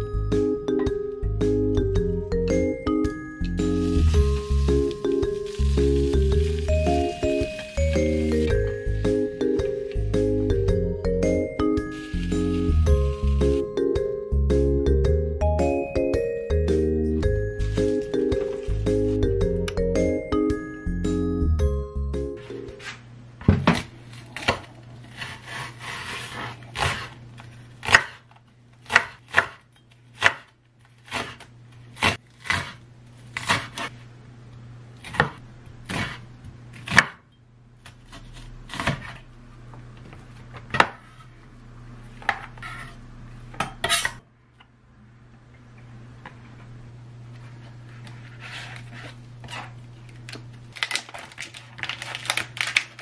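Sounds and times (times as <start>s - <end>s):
low steady hum: 0.0s - 25.4s
knife chopping on wooden board: 28.8s - 30.5s, 35.0s - 36.2s, 36.8s - 37.2s, 38.1s - 39.2s.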